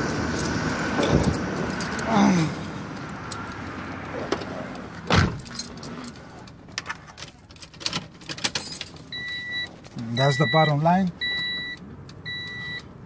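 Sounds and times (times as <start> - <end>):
keys jingling: 0.0 - 2.1, 5.1 - 10.0.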